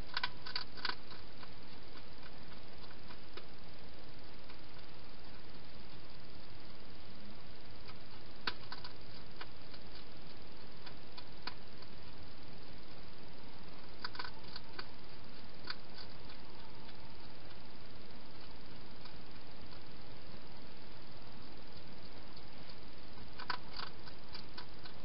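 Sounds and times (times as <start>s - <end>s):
hedgehog eating clicks: 0.0s - 3.7s, 7.8s - 12.0s, 13.8s - 20.0s, 21.4s - 25.0s
steady hiss: 0.0s - 25.0s.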